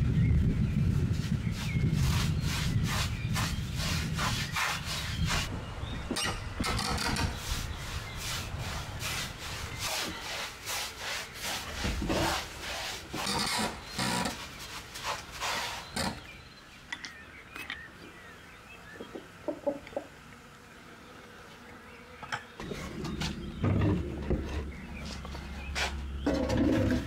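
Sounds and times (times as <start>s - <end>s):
tool rubbing on plaster wall: 1.0s - 5.5s, 6.6s - 16.3s.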